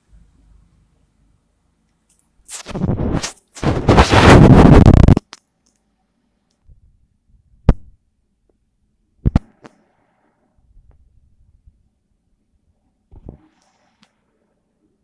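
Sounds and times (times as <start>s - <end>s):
rubbing scrape on microphone: 2.5s - 5.2s.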